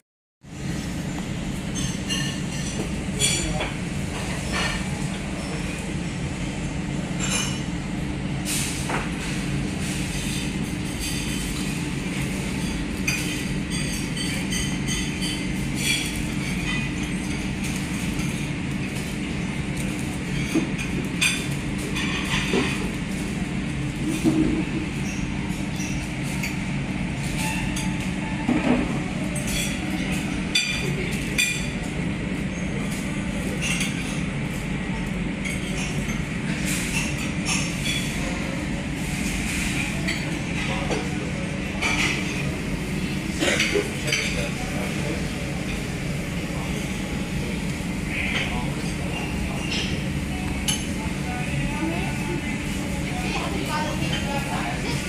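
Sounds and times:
low background hum: 0:00.5 - 0:55.0
tableware clinking: 0:01.7 - 0:05.8, 0:07.1 - 0:07.7, 0:12.5 - 0:18.5, 0:27.3 - 0:31.8, 0:43.3 - 0:44.9.

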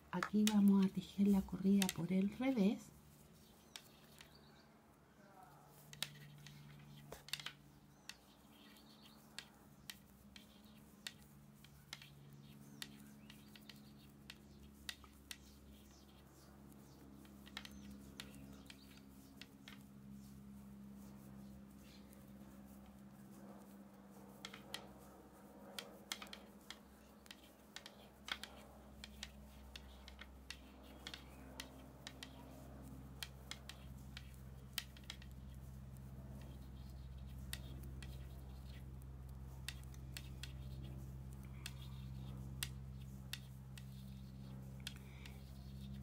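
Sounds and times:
knitting needles clicking: 0:00.0 - 0:04.4, 0:05.7 - 0:46.0
low steady hum: 0:00.0 - 0:46.0.

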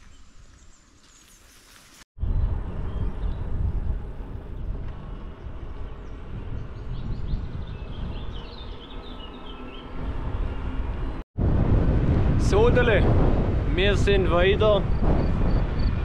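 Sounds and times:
wind rumble on microphone: 0:02.2 - 0:16.0
bird chirping: 0:06.0 - 0:10.8.

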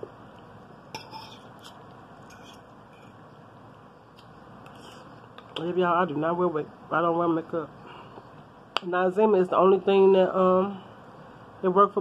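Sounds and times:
faint room hiss: 0:00.0 - 0:12.0
fork scraping a plate: 0:00.9 - 0:03.2, 0:04.6 - 0:05.2.

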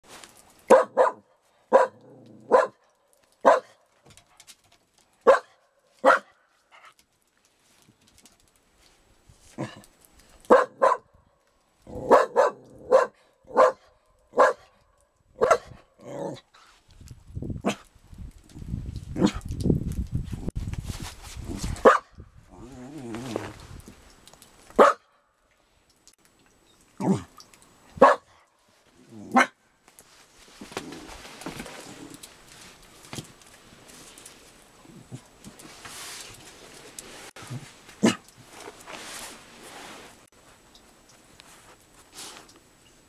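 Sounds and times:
dog barking: 0:00.7 - 0:02.8, 0:03.4 - 0:03.8, 0:05.2 - 0:06.4, 0:10.5 - 0:11.1, 0:12.0 - 0:14.7, 0:15.4 - 0:15.8, 0:21.8 - 0:22.1, 0:24.8 - 0:25.1, 0:28.0 - 0:28.4, 0:29.3 - 0:29.6.

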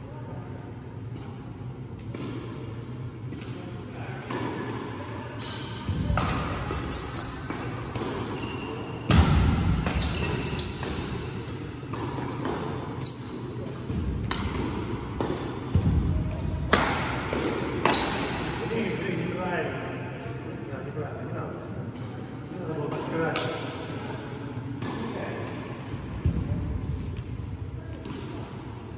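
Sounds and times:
rackets hitting shuttlecock: 0:04.2 - 0:08.4, 0:09.0 - 0:18.6
shoes squeaking: 0:06.2 - 0:09.0, 0:09.9 - 0:12.0, 0:15.2 - 0:16.8, 0:17.8 - 0:18.6.

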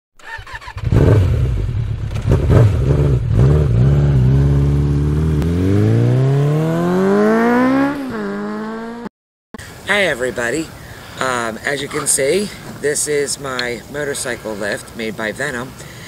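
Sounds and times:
motorcycle engine revving: 0:00.2 - 0:09.1.

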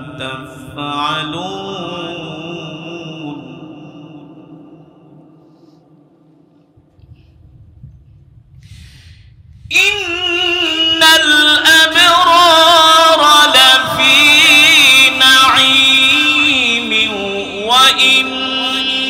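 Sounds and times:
man reciting melodically: 0:00.0 - 0:05.1, 0:09.7 - 0:19.0
low rumble: 0:06.6 - 0:10.6.

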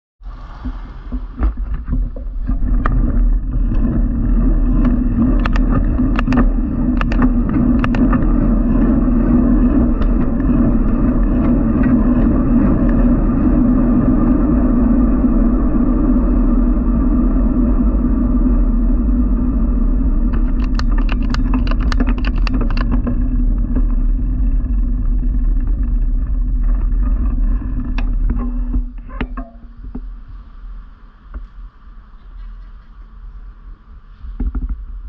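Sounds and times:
road rumble: 0:00.2 - 0:35.0
wind on microphone: 0:00.2 - 0:35.0
sharp rattling clicks: 0:02.7 - 0:12.0, 0:20.3 - 0:24.6.

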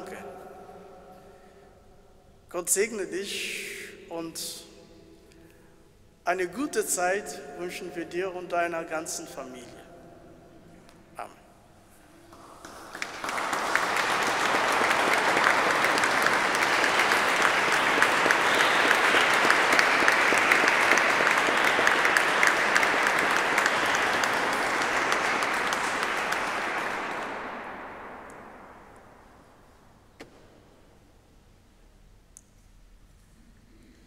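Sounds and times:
people clapping: 0:12.2 - 0:29.6.

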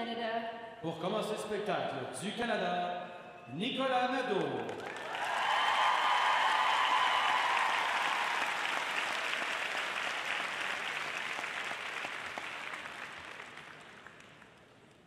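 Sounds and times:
arena crowd applauding: 0:04.3 - 0:15.0.

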